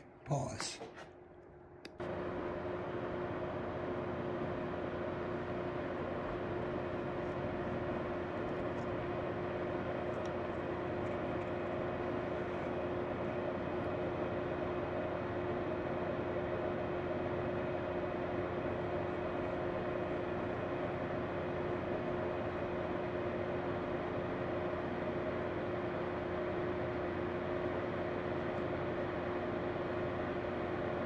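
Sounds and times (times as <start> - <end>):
steady hum with tones: 0.0 - 31.0.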